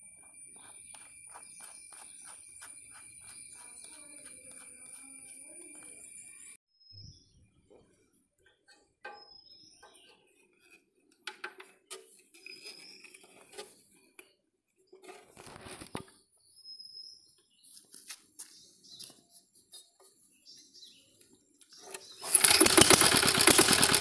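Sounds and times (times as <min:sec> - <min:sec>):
bird chirping: 0:00.0 - 0:10.8, 0:11.8 - 0:13.6, 0:16.2 - 0:17.8, 0:18.4 - 0:22.7.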